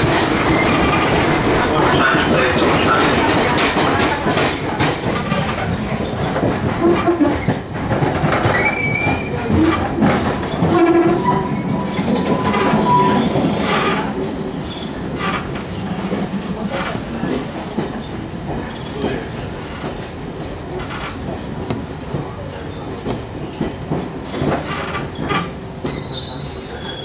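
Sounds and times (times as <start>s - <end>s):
train wheels clattering over rail joints: 0.0s - 26.7s
train wheel squeals: 8.4s - 9.9s, 10.5s - 16.0s, 24.4s - 27.0s.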